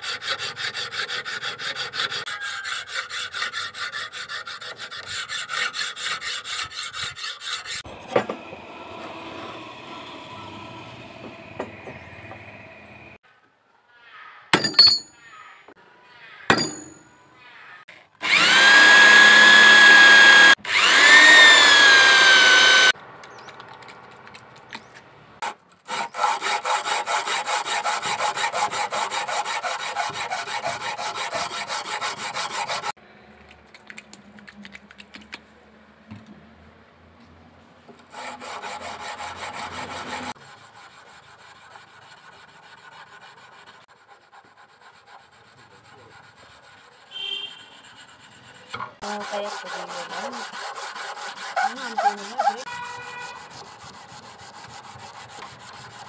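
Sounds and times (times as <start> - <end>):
metal file rasping on steel: 0.0 - 8.0, 16.5 - 17.0, 18.2 - 23.0, 25.4 - 33.0, 38.0 - 56.0
small power tool motor: 18.2 - 23.0.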